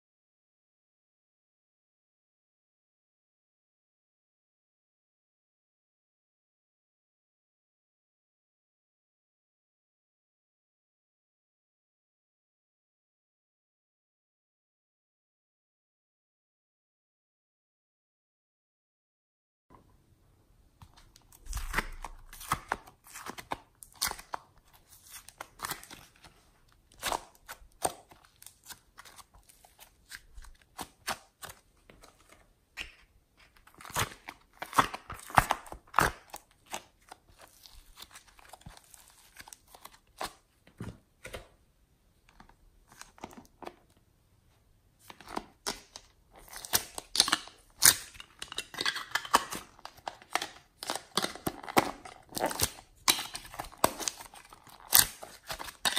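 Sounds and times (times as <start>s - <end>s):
plastic containers crinkling and clicking: 20.8s - 41.6s, 45.0s - 55.9s.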